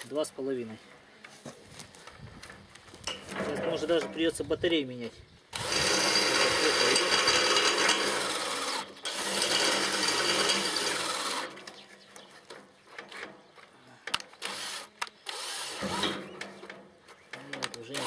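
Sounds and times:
battery drill drilling: 0:05.6 - 0:11.6, 0:14.4 - 0:16.3.

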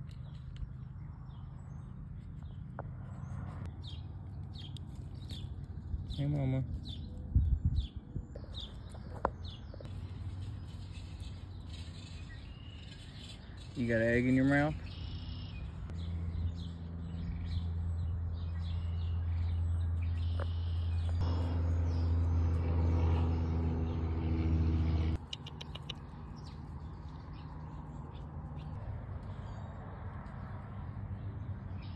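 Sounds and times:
small birds chirping: 0:00.0 - 0:24.1, 0:25.1 - 0:31.9.

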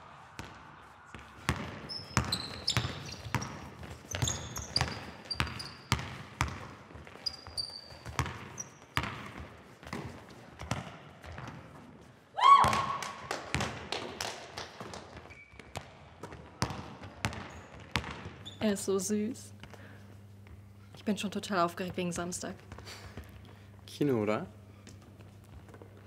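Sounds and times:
basketball bouncing on gym floor: 0:01.4 - 0:11.8, 0:12.5 - 0:18.7
shoes squeaking: 0:01.6 - 0:10.4, 0:15.1 - 0:15.7, 0:18.4 - 0:18.8
person shouting: 0:12.4 - 0:13.0.

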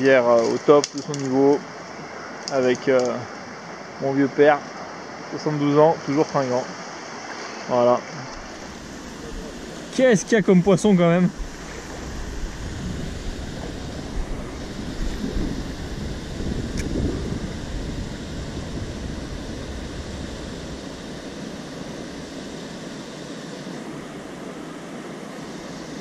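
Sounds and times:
river water rushing: 0:03.2 - 0:26.0
wind buffeting microphone: 0:11.3 - 0:22.5.

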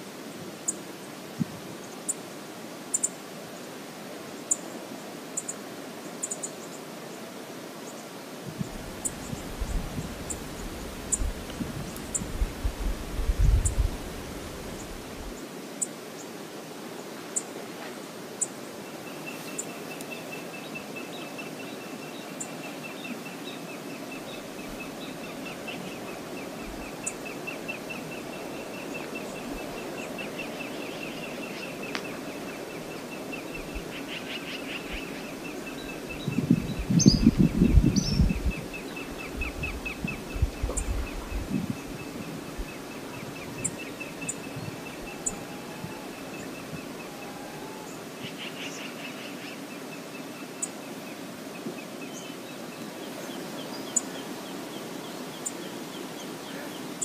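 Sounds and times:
river water rushing: 0:13.8 - 0:36.2
faint high ticks: 0:31.9 - 0:32.1.

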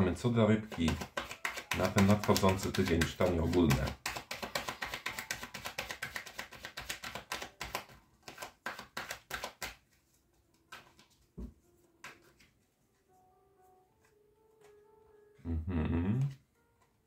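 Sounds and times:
soft background music: 0:00.0 - 0:17.0
cards tapping: 0:00.6 - 0:12.5
cards being shuffled: 0:00.6 - 0:12.6.

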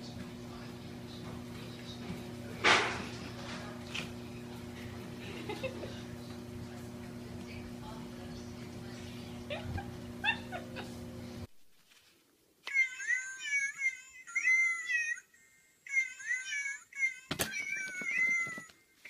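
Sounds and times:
treadmill motor humming: 0:00.0 - 0:11.5.

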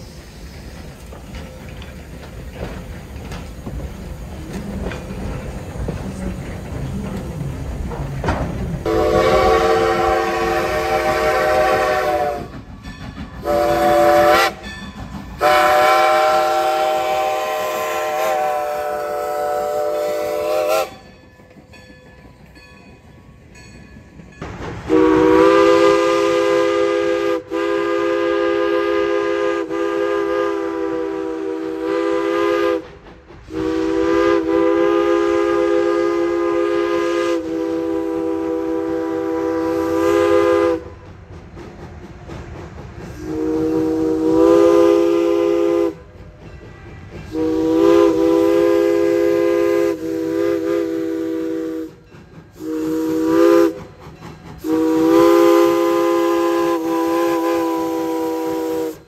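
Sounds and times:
faint train: 0:00.0 - 0:59.0
steam locomotive chime whistle: 0:08.8 - 0:41.1, 0:43.1 - 0:59.0.

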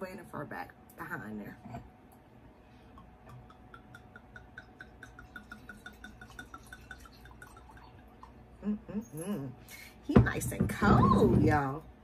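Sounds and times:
wine glugging into a glass: 0:04.4 - 0:08.3.

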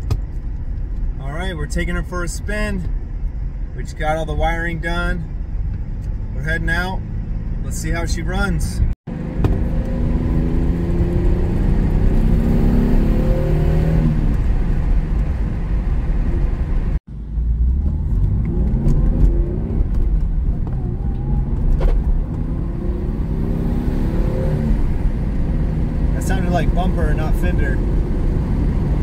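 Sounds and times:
road rumble: 0:00.0 - 0:29.0
car engine accelerating hard: 0:09.1 - 0:29.0.

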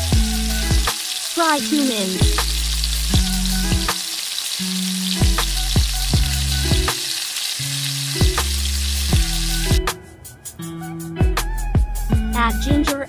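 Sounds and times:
onions sizzling in oil: 0:00.0 - 0:09.8
background music with beat: 0:00.0 - 0:13.0.

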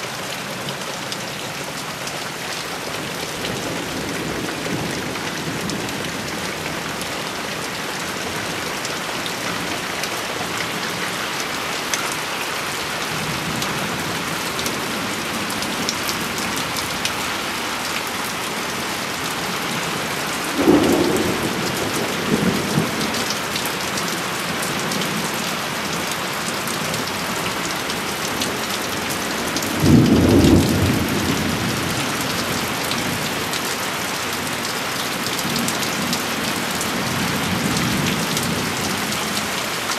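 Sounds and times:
heavy rain on roofs and leaves: 0:00.0 - 0:39.9
thunder rumbles: 0:18.7 - 0:23.3, 0:29.8 - 0:32.4.

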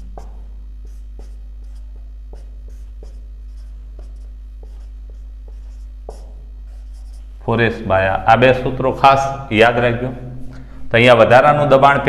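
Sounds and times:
marker writing on whiteboard: 0:00.0 - 0:07.3
steady low hum: 0:00.0 - 0:12.0.

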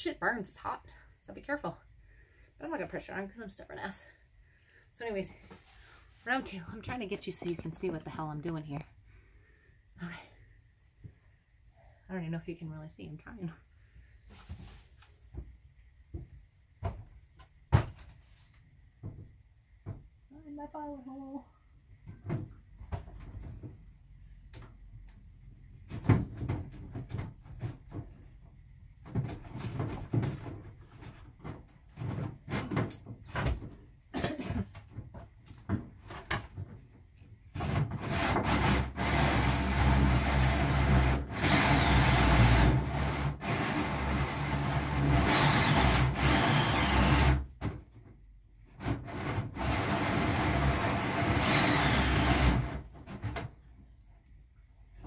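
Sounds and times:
drill cutting through sheet metal: 0:38.0 - 0:47.6, 0:48.8 - 0:52.9.

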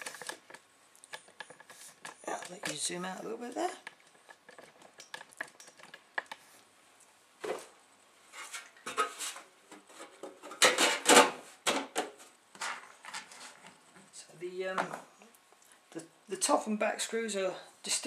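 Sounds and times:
metal scraping and knocking: 0:08.3 - 0:13.7.

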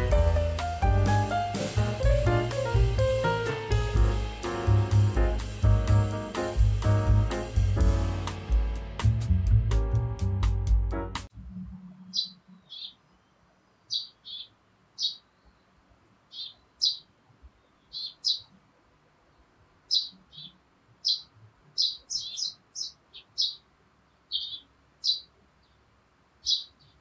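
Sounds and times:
faint steady hiss: 0:00.0 - 0:09.2, 0:11.3 - 0:27.0
small birds chirping: 0:12.0 - 0:27.0.

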